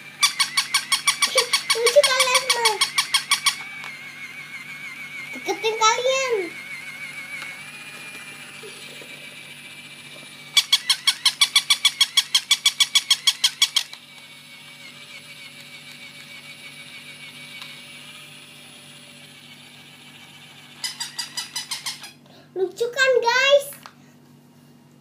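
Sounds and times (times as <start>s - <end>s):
toy puppy high squeaks: 0.1s - 9.2s, 9.8s - 14.0s, 20.6s - 22.2s.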